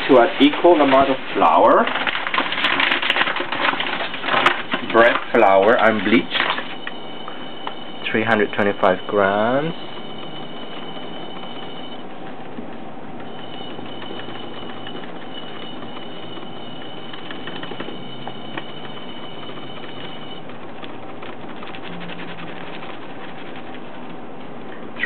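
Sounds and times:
paper bag crinkling: 0.0s - 6.9s
thin high whine: 2.6s - 25.0s.

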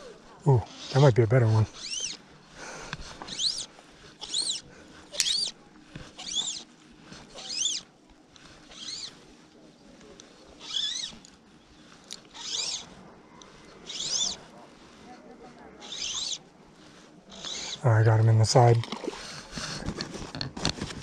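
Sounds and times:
small animal squeaky call: 0.6s - 2.2s, 3.3s - 5.6s, 6.2s - 6.7s, 7.3s - 7.9s, 8.7s - 9.2s, 10.6s - 11.2s, 12.3s - 12.9s, 13.8s - 14.4s, 15.8s - 16.4s, 17.3s - 17.8s.

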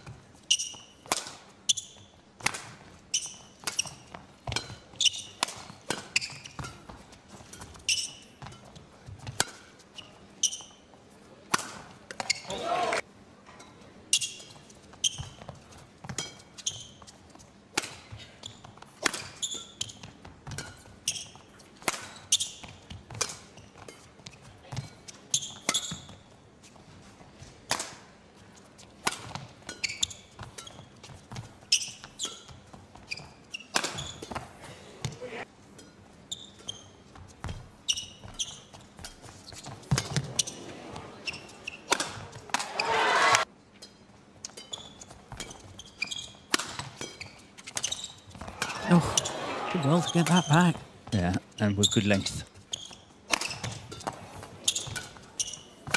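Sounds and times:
shoe squeaks on court: 0.4s - 1.1s, 1.7s - 2.2s, 3.1s - 6.9s, 7.5s - 8.6s, 9.9s - 10.9s, 12.2s - 12.7s, 14.1s - 17.3s, 18.2s - 20.1s, 21.0s - 22.8s, 23.6s - 26.3s, 29.7s - 34.5s, 36.3s - 43.5s, 44.6s - 50.6s, 51.5s - 55.9s
racket hitting shuttlecock: 0.6s - 8.6s, 9.3s - 9.7s, 11.5s - 13.0s, 17.7s - 18.0s, 19.0s - 20.9s, 21.8s - 24.0s, 27.7s - 28.1s, 29.0s - 32.5s, 33.7s - 34.5s, 37.4s - 40.6s, 41.6s - 43.5s, 46.5s - 49.6s, 53.3s - 55.9s
crowd noise: 12.4s - 13.0s, 40.2s - 43.4s, 48.4s - 52.4s.

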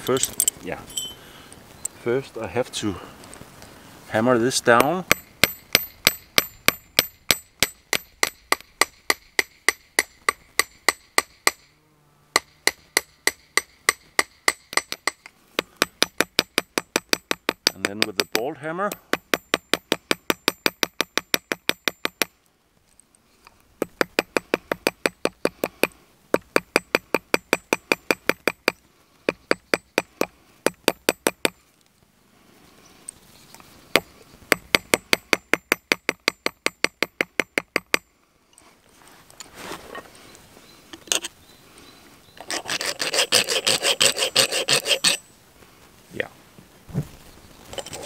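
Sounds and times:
hammer tapping copper: 4.8s - 11.6s, 12.4s - 22.3s, 34.0s - 38.1s
filing metal: 42.4s - 45.2s.

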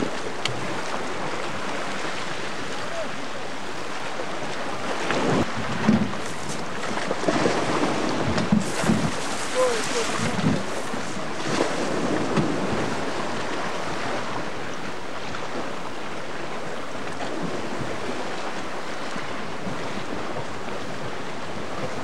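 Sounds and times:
sea surf: 0.0s - 22.0s
steady wind: 0.0s - 22.0s
wind buffeting microphone: 4.4s - 14.5s.

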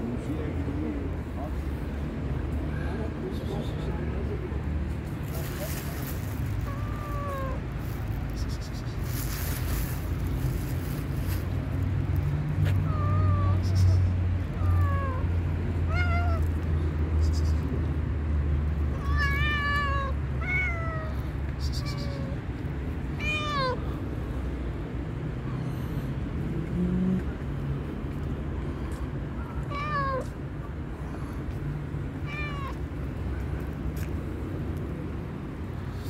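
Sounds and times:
cat meowing: 6.6s - 7.6s, 12.7s - 16.6s, 18.9s - 22.4s, 23.2s - 23.8s, 29.5s - 30.3s, 32.2s - 32.8s.

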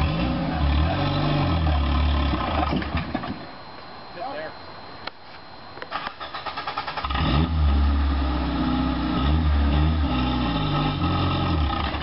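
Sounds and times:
engine revving under load: 0.0s - 3.0s, 6.0s - 12.0s.

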